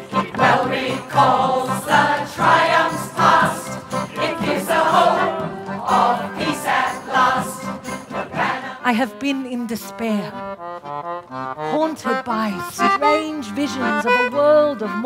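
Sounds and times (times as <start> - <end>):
mixed choir singing: 0.0 - 8.8.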